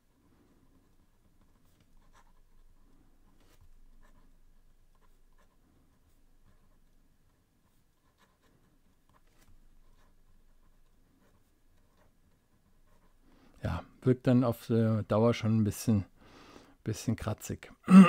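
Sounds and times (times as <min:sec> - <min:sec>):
pen scratching on paper: 0:00.3 - 0:13.2.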